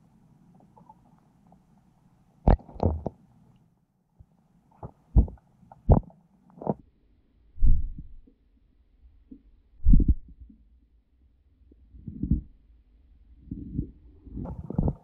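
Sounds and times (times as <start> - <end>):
muffled underwater knocks and thumps: 2.5 - 3.2, 4.8 - 6.8, 13.5 - 15.0.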